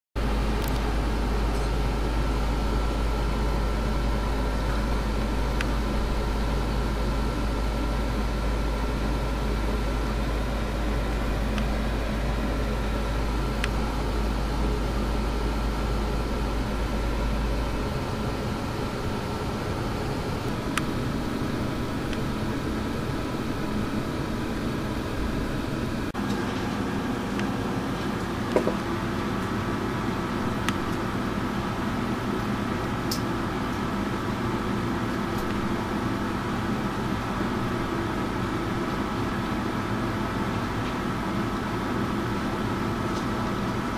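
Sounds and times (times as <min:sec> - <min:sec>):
faint high whine: 0:00.2 - 0:33.3
aquarium filter hum: 0:00.2 - 0:43.9.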